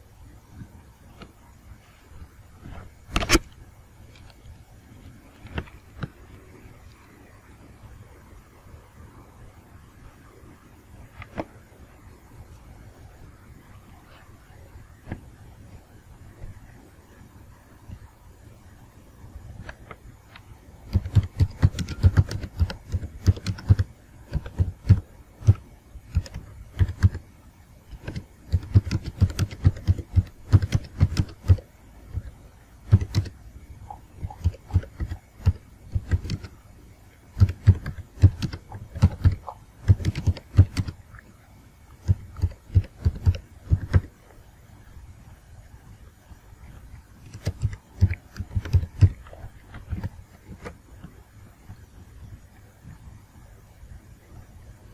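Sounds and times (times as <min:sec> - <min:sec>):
typing on computer keyboard: 0:20.9 - 0:27.3, 0:27.9 - 0:32.3, 0:32.9 - 0:33.4, 0:34.2 - 0:36.6, 0:37.3 - 0:41.0, 0:42.0 - 0:44.1, 0:47.2 - 0:49.3.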